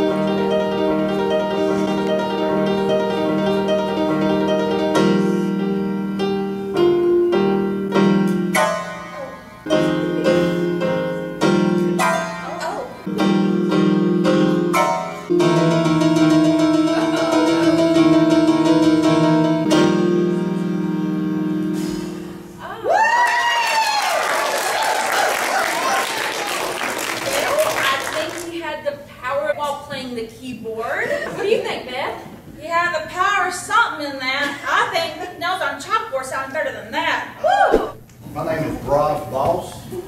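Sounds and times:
electronic keyboard chords: 0.0 - 22.6
audience whooping: 22.6 - 28.3, 37.4 - 38.0
audience clapping: 23.2 - 28.6.

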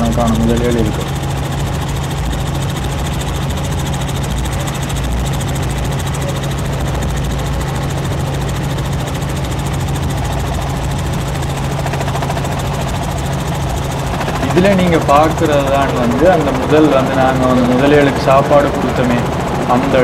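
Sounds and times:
helicopter engine and rotors: 0.0 - 20.0.

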